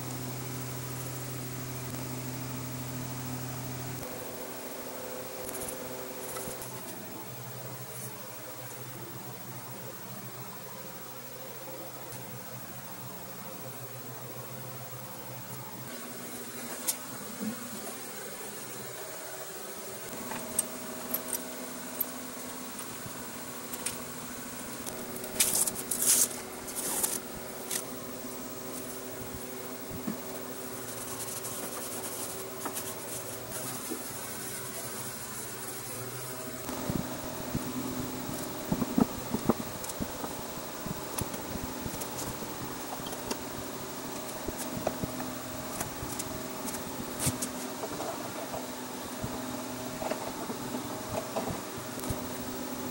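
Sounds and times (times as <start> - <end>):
steady low hum: 0.0 - 52.9
tape being peeled off: 25.3 - 27.8.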